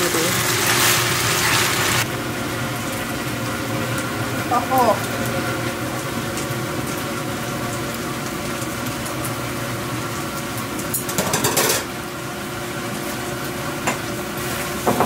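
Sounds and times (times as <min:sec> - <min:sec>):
range hood fan whirring: 0:00.0 - 0:15.0.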